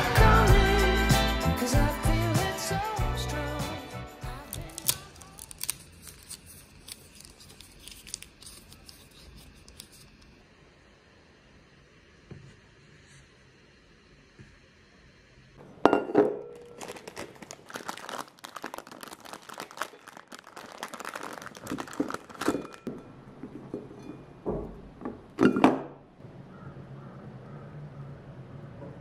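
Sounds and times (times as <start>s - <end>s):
crinkling and rustling: 16.5s - 23.0s.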